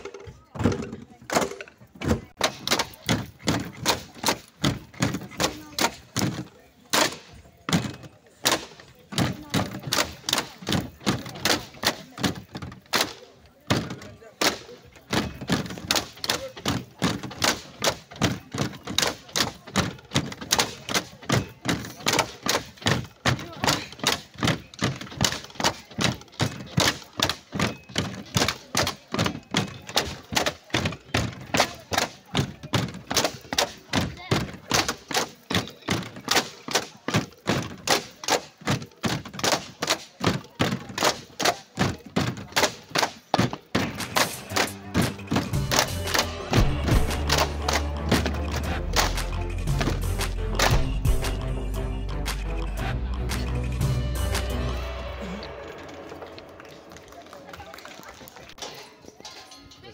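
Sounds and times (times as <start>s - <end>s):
bamboo poles clacking: 0.0s - 53.6s, 55.2s - 59.9s.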